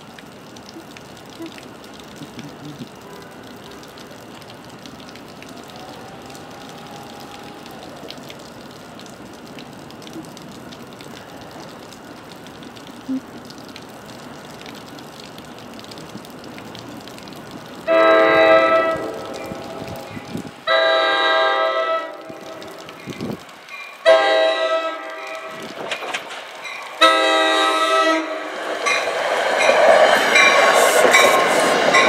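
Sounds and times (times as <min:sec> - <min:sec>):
outdoor background noise: 0:00.0 - 0:32.0
train horn blast: 0:17.9 - 0:22.6, 0:24.0 - 0:25.7, 0:27.0 - 0:28.5.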